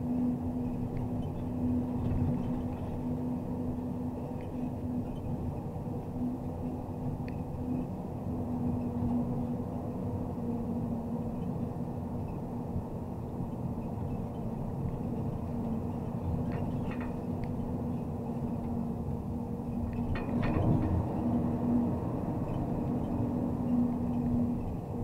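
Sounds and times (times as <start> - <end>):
truck diesel engine droning: 14.8 - 25.0.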